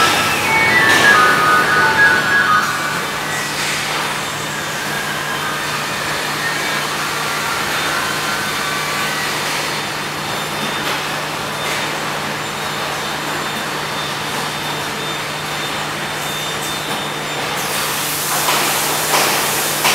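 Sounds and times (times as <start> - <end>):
whirring and hiss of welding robots: 17.6 - 19.9.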